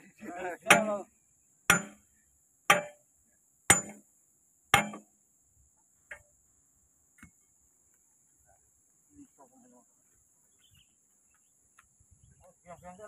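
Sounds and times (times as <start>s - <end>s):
hammer striking steel pins: 1.7s - 2.0s, 2.7s - 3.0s, 3.7s - 4.0s, 4.8s - 5.0s.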